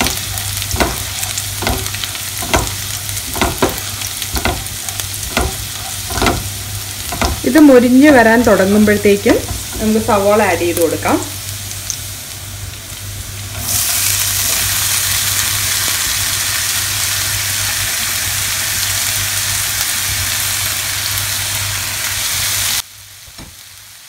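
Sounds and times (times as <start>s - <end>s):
low steady hum: 0.0s - 17.6s
onions sizzling in oil: 0.0s - 24.0s.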